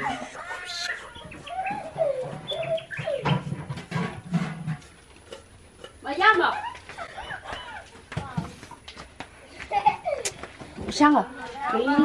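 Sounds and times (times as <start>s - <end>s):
farm animals calling: 0.0s - 3.8s.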